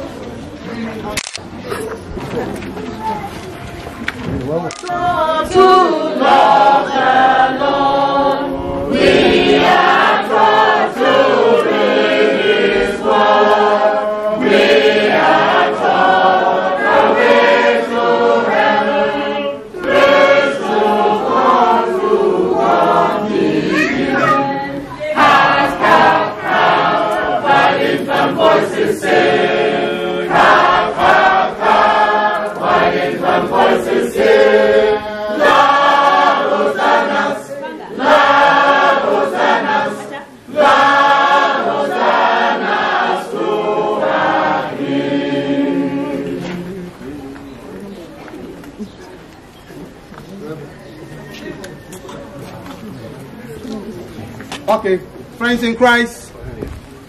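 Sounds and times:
choir singing a hymn: 4.9s - 47.3s.

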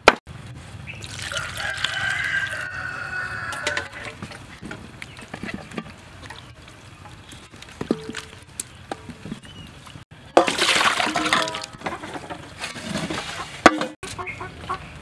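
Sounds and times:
water pouring into steel bowl: 1.0s - 2.6s.

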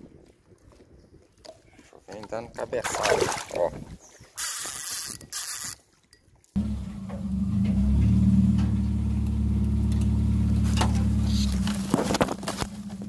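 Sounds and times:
car engine running: 6.6s - 13.0s
branches scraping and snapping: 9.9s - 13.0s.

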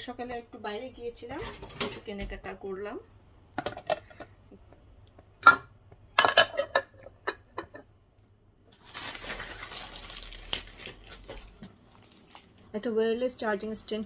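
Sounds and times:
dishes and glass containers clattering: 5.4s - 7.9s.

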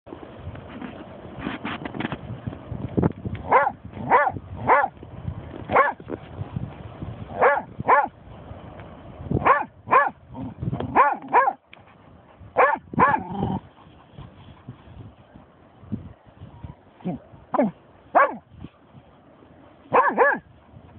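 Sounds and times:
dog barking sharply: 3.5s - 4.9s, 5.7s - 6.0s, 7.4s - 8.1s, 9.4s - 10.2s, 10.9s - 11.6s, 12.6s - 13.3s, 17.6s - 18.4s, 19.9s - 20.4s.

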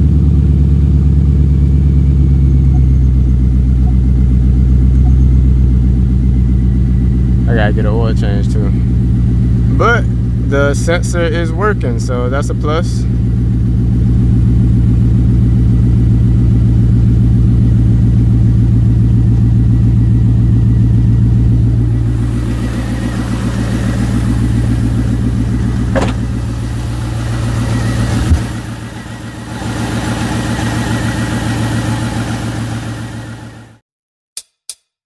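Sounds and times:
car engine idling: 0.0s - 33.8s
sharp knock: 25.9s - 26.2s.

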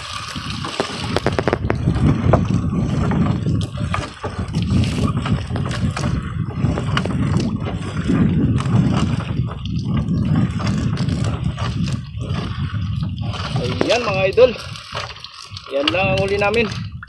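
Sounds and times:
net knocking against boat: 13.3s - 15.2s.

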